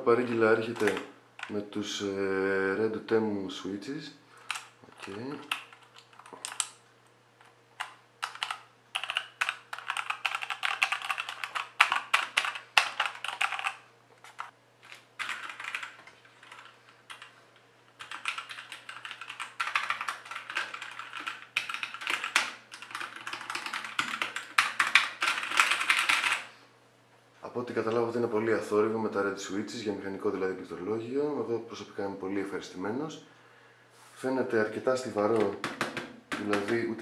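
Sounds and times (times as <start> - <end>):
mechanical keyboard typing: 0.2 - 1.6, 7.8 - 14.5, 15.2 - 17.3, 18.0 - 26.5.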